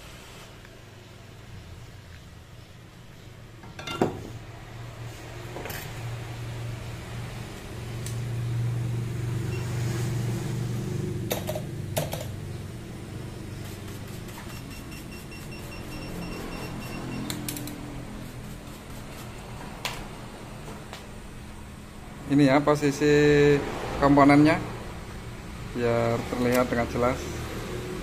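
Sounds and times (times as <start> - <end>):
hot air blower hum and hiss: 0.0 - 14.5.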